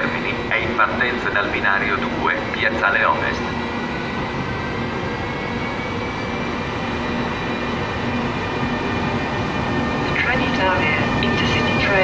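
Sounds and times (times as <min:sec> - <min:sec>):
train rolling rumble: 0:00.0 - 0:12.0
whining motor tones: 0:00.0 - 0:12.0.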